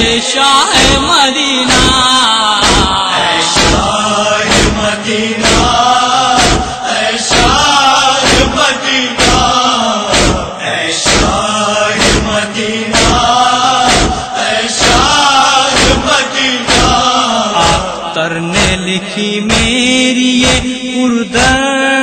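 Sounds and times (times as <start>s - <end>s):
men chanting a lament: 0.0s - 22.0s
hands striking chests: 4.5s - 5.8s, 6.4s - 7.6s, 9.2s - 10.4s, 12.0s - 16.1s.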